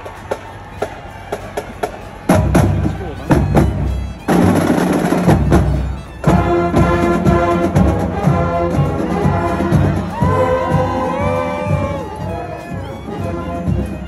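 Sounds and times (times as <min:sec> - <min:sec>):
brass section chords: 0:00.0 - 0:14.0
marching drumline: 0:00.0 - 0:14.0.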